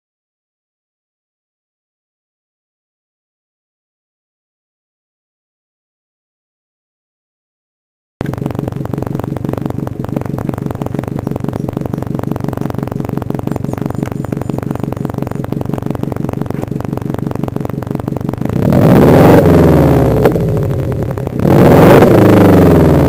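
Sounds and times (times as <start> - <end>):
car engine idling: 8.2 - 23.0
engine throttle blip: 8.2 - 23.0.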